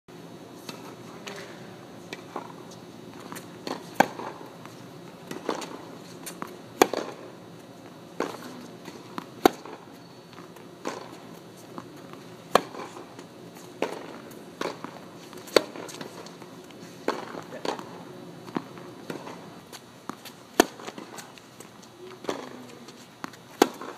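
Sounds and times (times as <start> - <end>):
racket hitting tennis ball: 0.6 - 7.4, 8.2 - 23.9
tennis ball bouncing: 2.1 - 7.4, 8.2 - 23.9.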